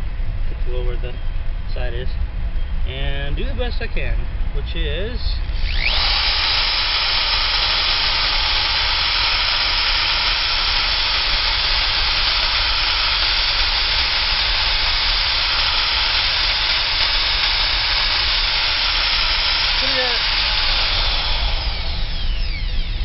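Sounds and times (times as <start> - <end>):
electric drill boring into wood: 5.4 - 23.0.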